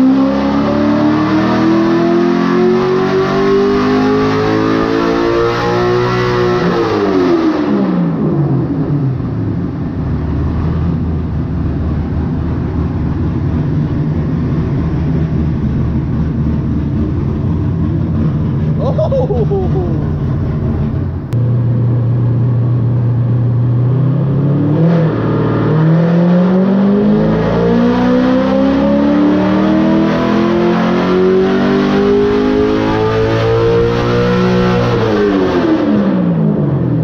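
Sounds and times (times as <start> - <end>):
engine revving on a dyno: 0.0 - 12.4, 21.4 - 37.0.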